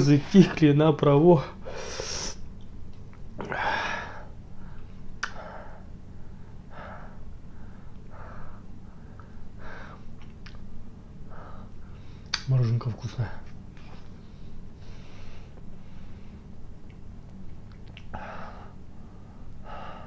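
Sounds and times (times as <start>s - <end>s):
man gasping breaths: 3.4s - 10.1s, 18.1s - 20.0s.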